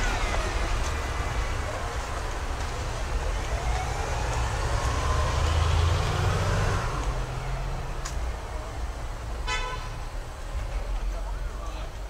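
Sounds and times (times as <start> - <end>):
motor vehicle passing: 0.0 - 8.1
city noise: 0.0 - 12.0.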